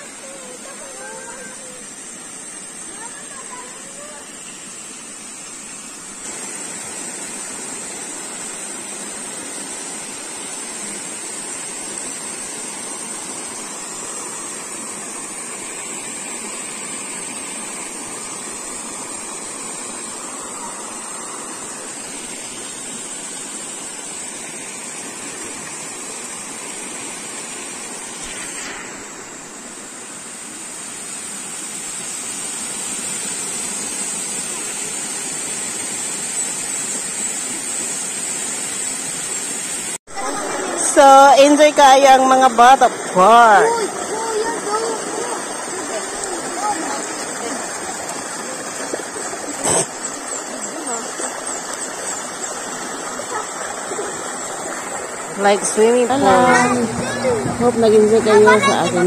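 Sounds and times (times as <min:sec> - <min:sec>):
waterfall splashing onto rock: 0:43.0 - 0:55.4.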